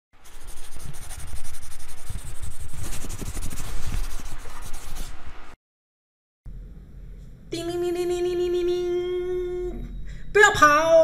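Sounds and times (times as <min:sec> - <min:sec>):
dense scratching rubbing noise: 0:00.2 - 0:05.2.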